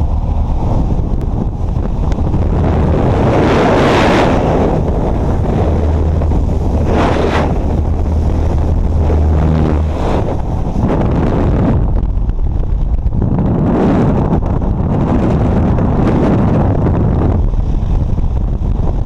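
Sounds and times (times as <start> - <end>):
plane engine and propeller drone: 0.0 - 19.0
wind rushing past microphone: 0.0 - 19.0.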